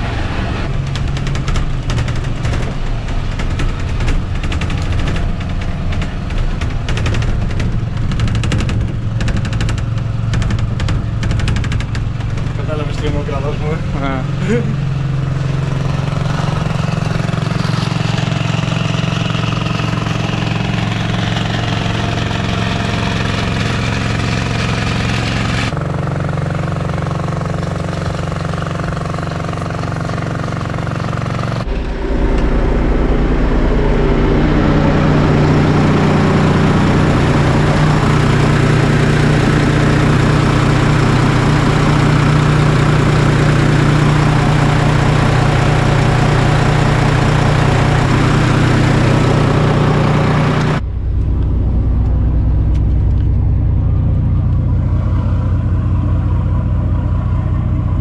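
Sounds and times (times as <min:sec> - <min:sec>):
engine droning: 0:00.0 - 0:58.0
rushing noise: 0:31.2 - 0:58.0.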